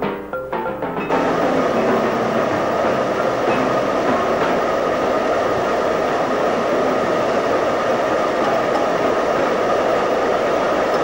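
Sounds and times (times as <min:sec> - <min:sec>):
river rapids rushing: 0:01.1 - 0:11.0.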